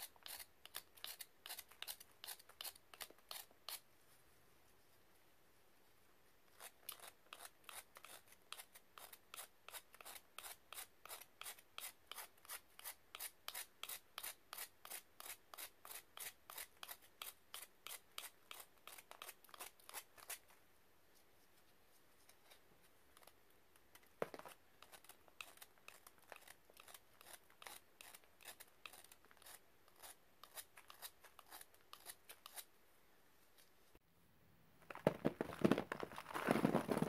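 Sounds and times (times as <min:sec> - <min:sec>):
scraping powdery block: 0:00.0 - 0:03.9, 0:24.2 - 0:32.7, 0:34.9 - 0:37.0.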